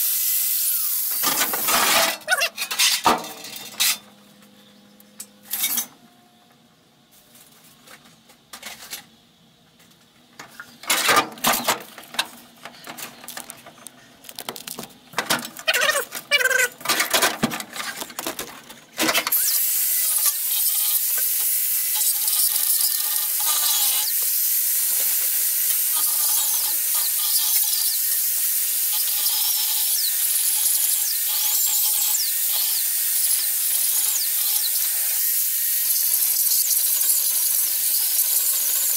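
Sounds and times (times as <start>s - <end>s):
angle grinder grinding steel: 19.3s - 38.9s.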